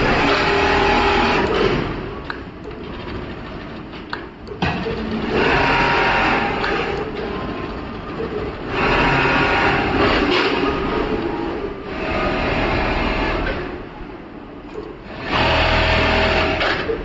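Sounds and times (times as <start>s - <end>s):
sewing machine stitching: 5.0s - 13.8s, 15.0s - 17.0s.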